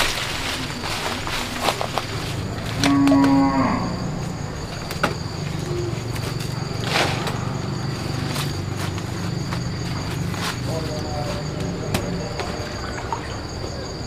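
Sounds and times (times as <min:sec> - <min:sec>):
cow mooing: 0:02.8 - 0:04.2.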